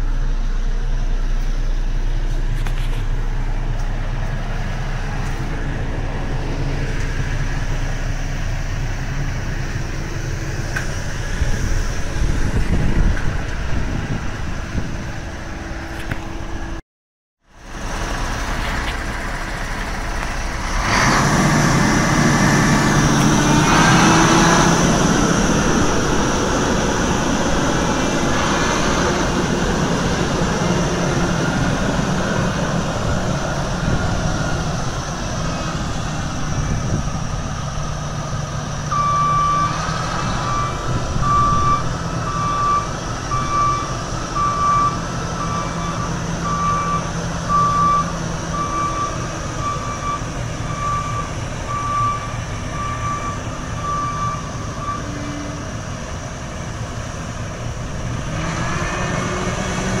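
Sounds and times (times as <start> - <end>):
diesel engine running: 0.0 - 16.8, 17.4 - 60.0
reversing alarm beeping: 38.9 - 55.6.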